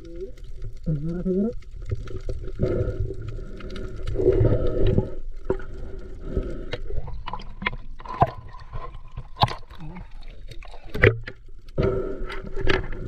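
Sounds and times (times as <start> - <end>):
seawater sloshing and gurgling: 1.7 - 11.5.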